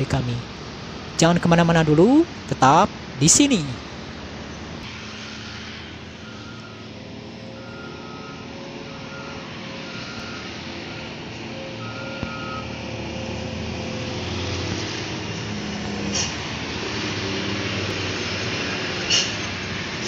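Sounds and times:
coach passing: 0.0s - 4.8s
highway traffic passing: 0.0s - 20.0s.

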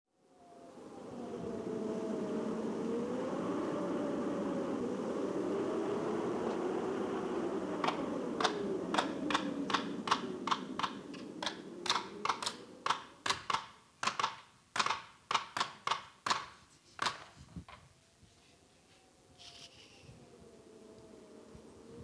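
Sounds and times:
hammer striking nails: 8.4s - 17.4s.

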